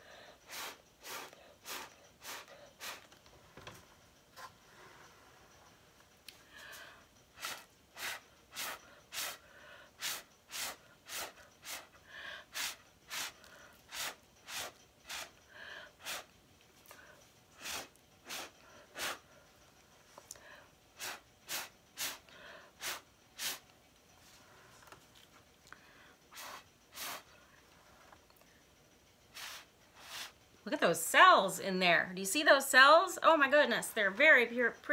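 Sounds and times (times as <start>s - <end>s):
puffs of breath through a straw: 0.0s - 3.1s, 6.4s - 16.3s, 16.9s - 19.4s, 20.3s - 23.6s, 25.7s - 27.4s, 29.3s - 30.4s.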